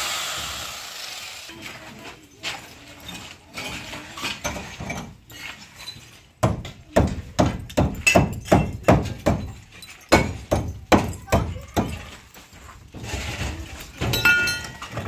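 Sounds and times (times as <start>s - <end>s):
scraping on masonry: 1.5s - 15.0s
hammer striking masonry wall: 6.4s - 12.1s.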